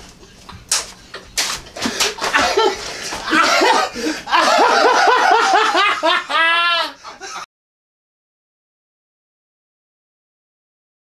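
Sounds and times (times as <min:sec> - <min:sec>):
person laughing: 0:01.8 - 0:07.5.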